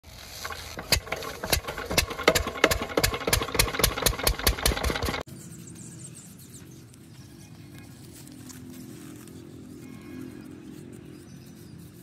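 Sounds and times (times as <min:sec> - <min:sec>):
diesel engine chugging: 0:00.4 - 0:05.2.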